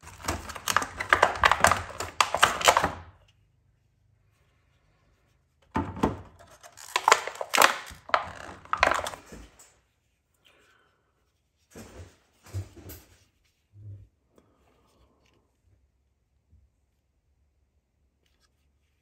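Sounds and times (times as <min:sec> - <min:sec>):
paper sheet rustling: 0:00.0 - 0:03.0, 0:06.4 - 0:10.2
plastic blister pack crinkling: 0:00.0 - 0:03.3, 0:06.1 - 0:09.7.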